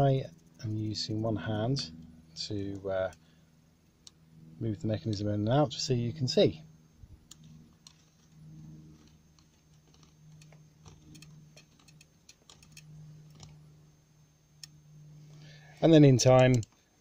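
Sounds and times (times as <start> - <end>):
low steady hum: 0.0 - 17.0
small model parts clicking: 9.0 - 13.6, 16.3 - 17.0.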